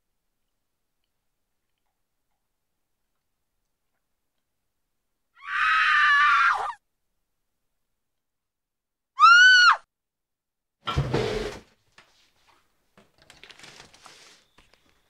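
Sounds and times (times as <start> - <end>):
high-pitched screams: 5.4 - 6.8, 9.2 - 9.9.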